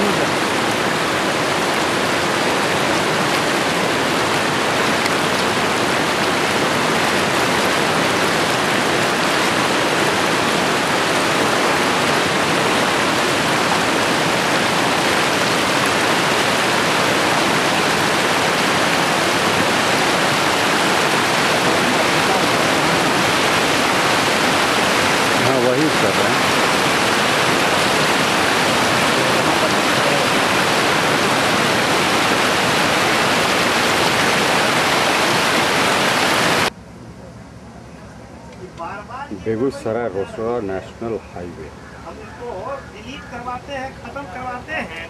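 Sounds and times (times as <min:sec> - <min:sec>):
steady rushing noise: 0:00.0 - 0:36.8.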